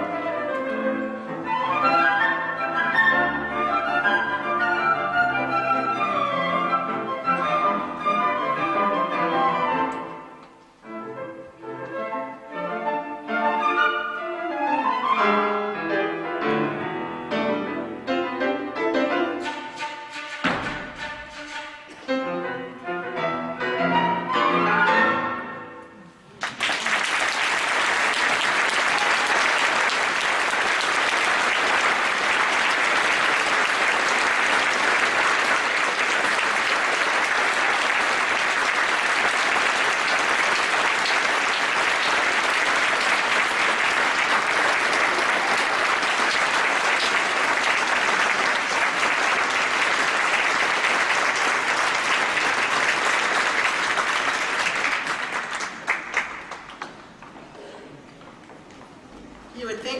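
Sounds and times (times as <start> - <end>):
audience applauding: 26.3 - 58.0.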